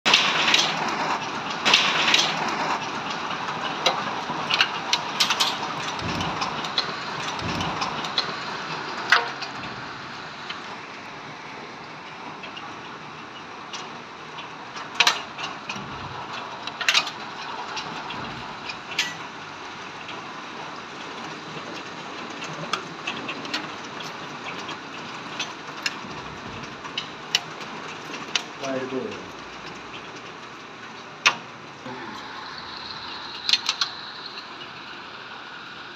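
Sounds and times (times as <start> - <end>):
hailstones cracking on hard surfaces: 0.1 - 9.0
hail and rain falling: 0.1 - 35.9.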